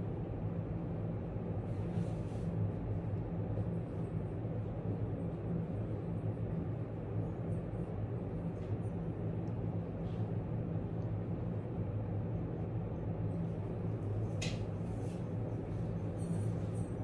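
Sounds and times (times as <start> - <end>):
low room hum: 0.0 - 17.0.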